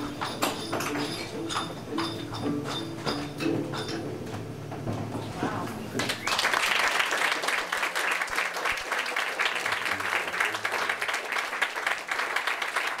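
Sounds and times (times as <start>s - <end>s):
audience applauding: 5.9s - 13.0s.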